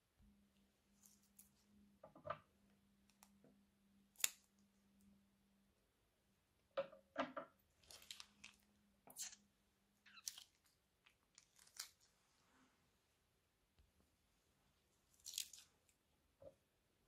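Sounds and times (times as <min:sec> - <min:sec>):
slime squelching: 0:07.7 - 0:12.2, 0:15.0 - 0:16.0.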